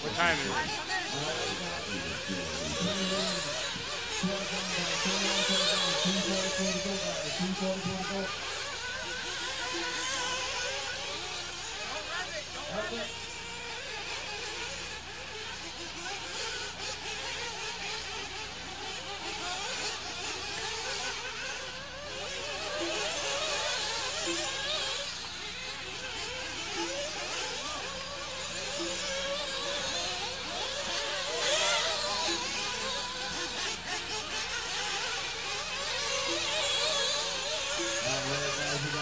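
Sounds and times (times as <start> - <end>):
rc buggy engines buzzing: 0.0 - 39.0.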